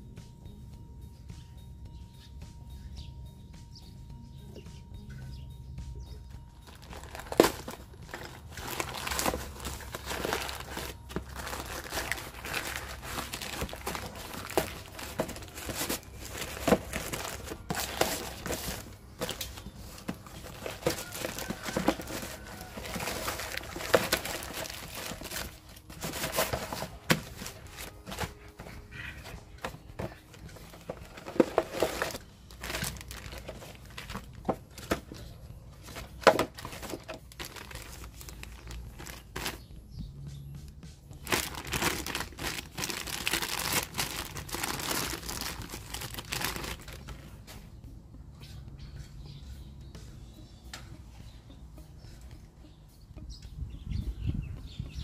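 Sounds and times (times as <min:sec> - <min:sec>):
plastic ripping: 0:06.7 - 0:28.7, 0:29.6 - 0:35.2, 0:35.9 - 0:39.6, 0:41.2 - 0:47.2
plastic packaging crinkling: 0:06.7 - 0:39.7, 0:41.2 - 0:47.3.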